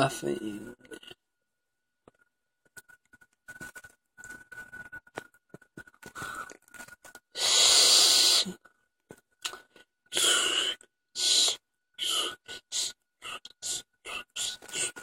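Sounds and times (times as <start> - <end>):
breathy puffs: 6.0 - 8.6.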